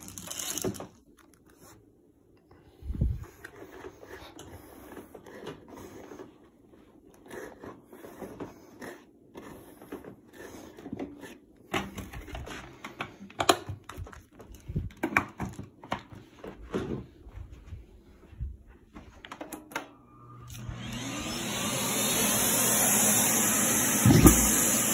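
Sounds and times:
paper rustling: 0.0 - 1.8.

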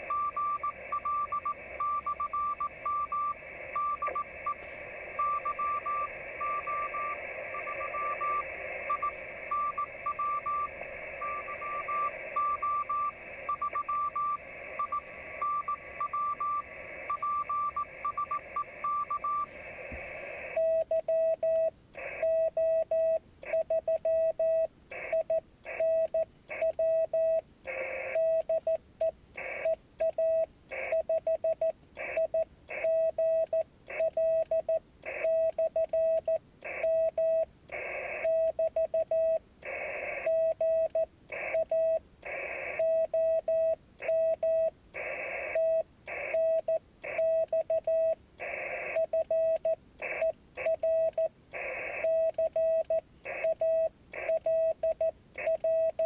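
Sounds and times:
morse code tone beeping: 0.0 - 19.6, 29.4 - 56.0
radio hiss: 0.0 - 20.6.

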